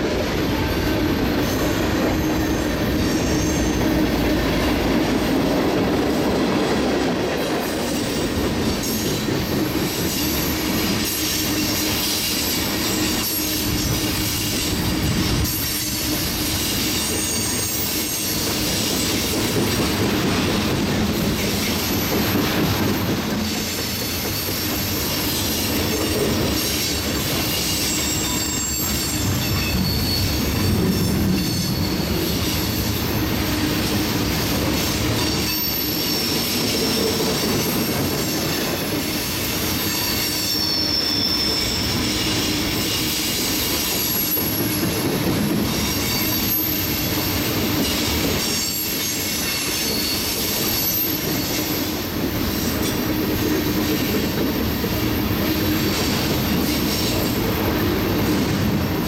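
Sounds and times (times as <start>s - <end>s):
train wheels rumbling on rail: 0.0s - 59.0s
high wheel squeals: 0.5s - 4.2s, 8.8s - 19.3s, 21.4s - 34.1s, 34.7s - 45.0s, 45.6s - 54.1s.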